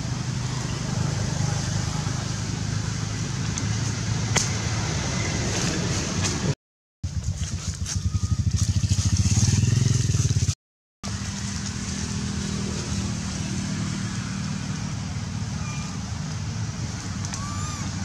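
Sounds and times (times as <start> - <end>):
motorcycle engine running: 7.0 - 16.7.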